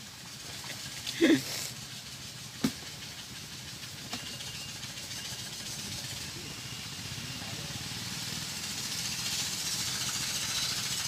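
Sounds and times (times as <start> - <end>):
background hiss: 0.0 - 4.0.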